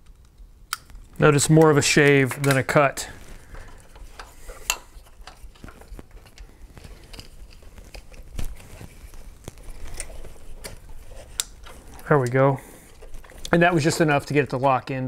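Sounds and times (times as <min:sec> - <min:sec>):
plastic connector clicks and rustles: 0:03.6 - 0:14.6.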